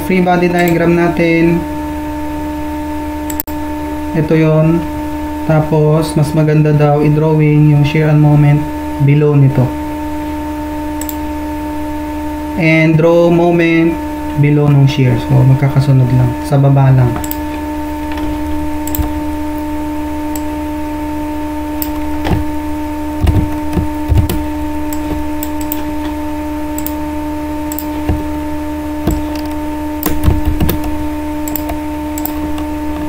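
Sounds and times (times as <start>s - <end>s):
electrical hum: 0.0s - 33.0s
mouse and keyboard clicks: 18.9s - 19.1s, 23.2s - 26.1s, 29.1s - 32.7s.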